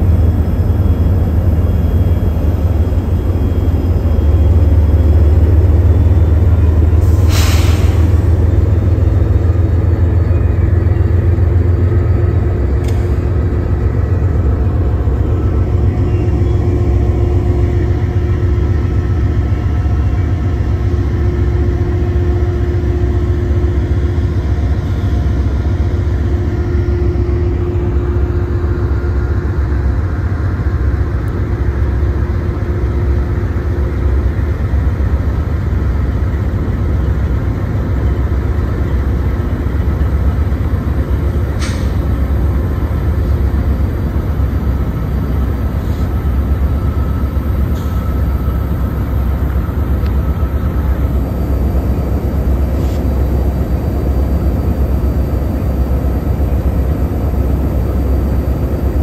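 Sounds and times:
diesel locomotive engines rumbling: 0:00.0 - 0:59.0
short click: 0:12.8 - 0:13.2, 0:41.6 - 0:42.0.

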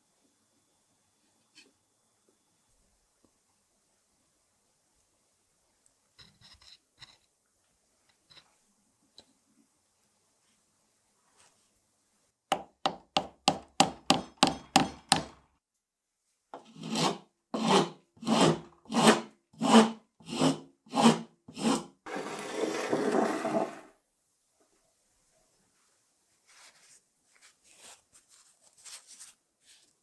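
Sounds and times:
hand file rasping wood: 0:16.6 - 0:23.7.

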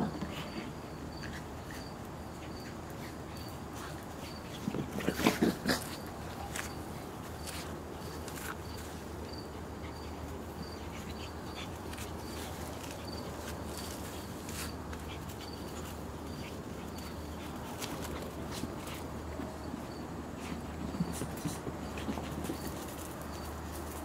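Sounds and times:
dogs play-growling: 0:00.0 - 0:08.6
paws scuffling on turf: 0:00.2 - 0:24.0.

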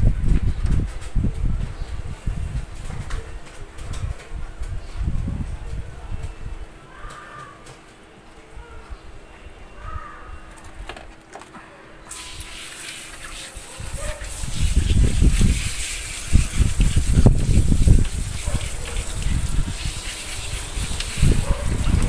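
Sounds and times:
hose spray hissing: 0:12.1 - 0:22.0
water splashing on dog and floor: 0:12.1 - 0:22.0.

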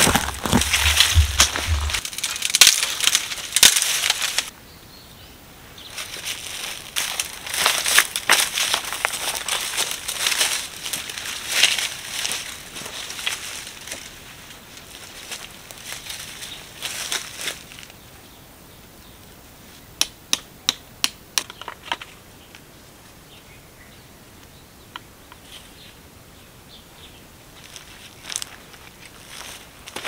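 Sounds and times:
footsteps crunching on dry leaves: 0:00.0 - 0:04.5, 0:05.9 - 0:17.9, 0:27.6 - 0:30.0.

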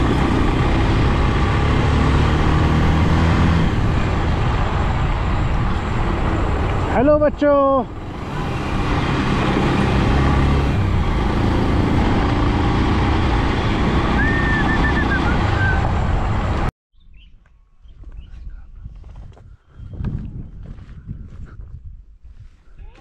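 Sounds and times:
motorcycle engine running: 0:00.0 - 0:07.1
wind rush: 0:00.0 - 0:16.7, 0:18.0 - 0:22.9
bird chirps: 0:17.0 - 0:18.6.

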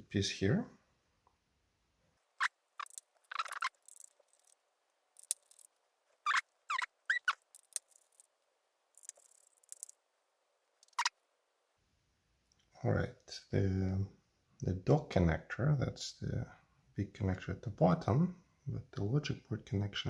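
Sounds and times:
brief squeaks: 0:02.4 - 0:04.1, 0:06.2 - 0:08.0.

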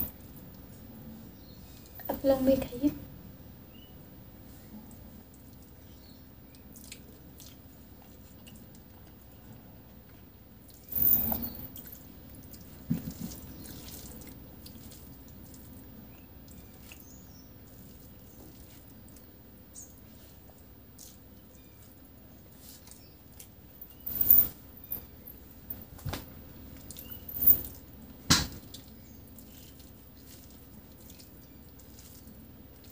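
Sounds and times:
small clicks of rice mixing: 0:04.4 - 0:23.7, 0:25.9 - 0:32.9
wet chewing sounds: 0:04.6 - 0:10.9, 0:11.8 - 0:23.7, 0:28.6 - 0:32.9.

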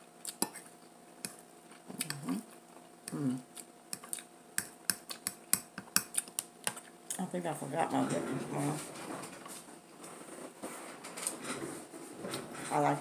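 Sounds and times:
person humming: 0:03.1 - 0:03.4.

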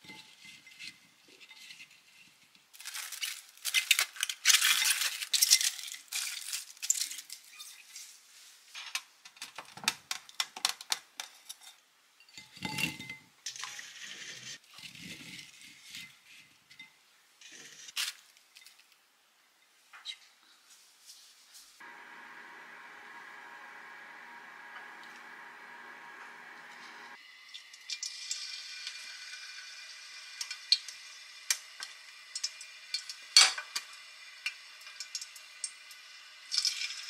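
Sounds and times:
plastic wrap crinkling: 0:02.7 - 0:08.2.

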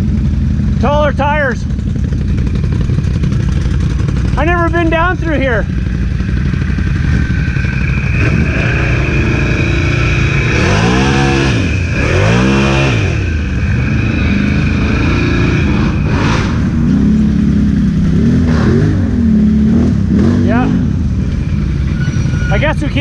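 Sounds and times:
atv engine revving: 0:00.0 - 0:23.0.

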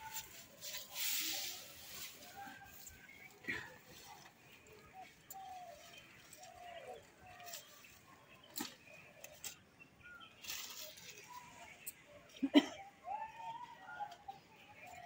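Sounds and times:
leaves rustling: 0:00.0 - 0:08.1, 0:10.4 - 0:11.7.

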